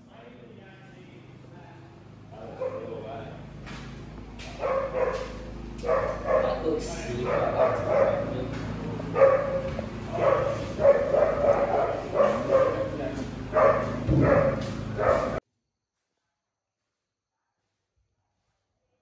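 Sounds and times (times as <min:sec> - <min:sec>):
dog barking and yipping: 0:02.5 - 0:02.9, 0:04.4 - 0:15.4.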